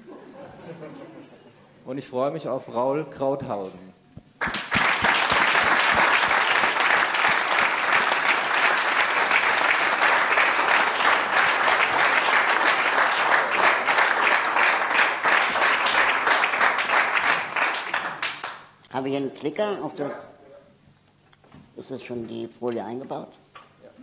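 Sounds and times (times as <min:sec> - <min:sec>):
audience applauding: 0:04.4 - 0:18.8.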